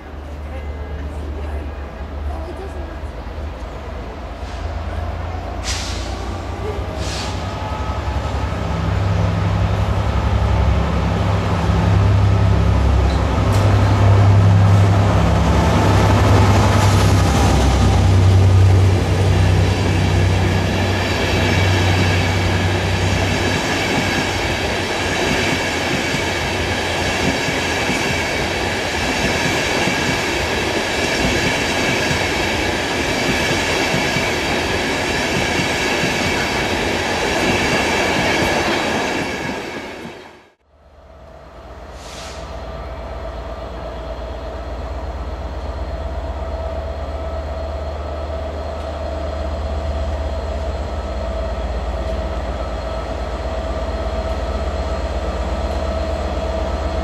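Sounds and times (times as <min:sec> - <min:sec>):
train wheel noise: 0:00.0 - 0:40.4
diesel locomotive engine drone: 0:00.0 - 0:57.0.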